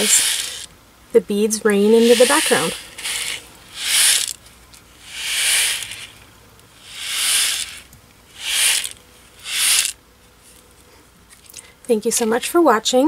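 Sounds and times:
beads swishing inside a card: 0:00.0 - 0:00.7, 0:01.7 - 0:04.4, 0:05.0 - 0:06.2, 0:06.8 - 0:10.6.

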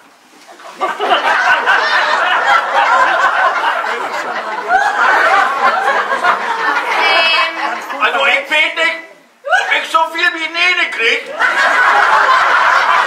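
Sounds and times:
audience laughing: 0:00.5 - 0:08.3, 0:10.9 - 0:13.0.

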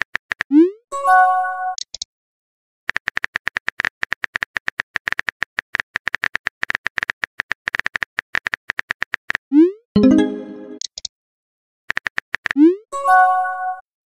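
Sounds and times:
rapid keyboard-like clicks: 0:00.0 - 0:00.5, 0:02.9 - 0:09.4, 0:11.9 - 0:12.6.

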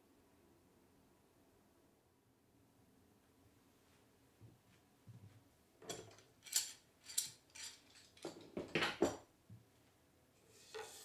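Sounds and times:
metallic scrapes and clicks: 0:05.9 - 0:08.4.

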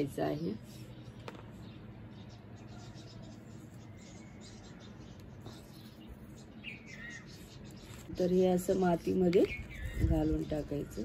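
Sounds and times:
bird chirp: 0:00.0 - 0:11.0
spoon scratching on soil: 0:05.4 - 0:10.8.

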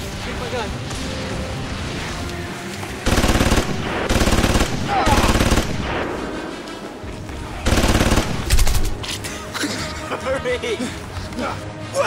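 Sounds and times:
machine-gun bursts: 0:03.1 - 0:05.8, 0:07.7 - 0:08.9.

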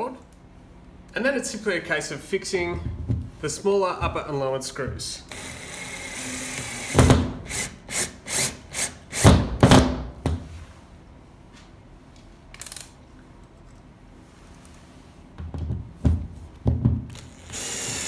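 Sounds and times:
cordless drill driving screws: 0:05.3 - 0:09.3, 0:17.1 - 0:18.0.

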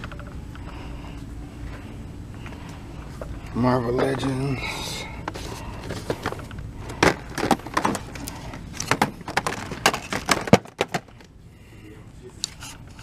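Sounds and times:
plastic packaging clicks and knocks: 0:05.9 - 0:11.3.

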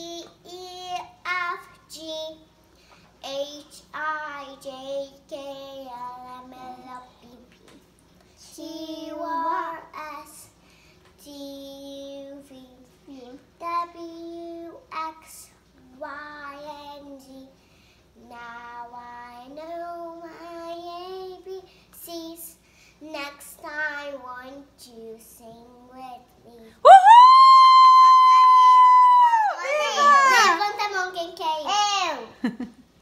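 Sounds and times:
girl singing unaccompanied: 0:00.0 - 0:02.6, 0:03.2 - 0:07.8, 0:08.4 - 0:10.6, 0:11.2 - 0:26.8.

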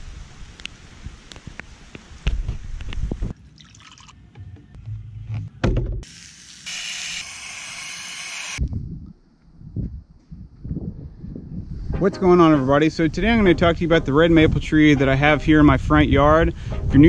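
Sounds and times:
hose sprayer hissing water jet: 0:06.1 - 0:08.6.

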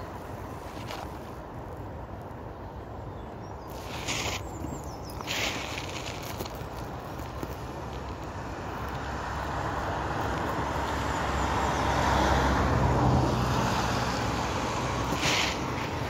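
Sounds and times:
short hiss: 0:05.2 - 0:06.2.

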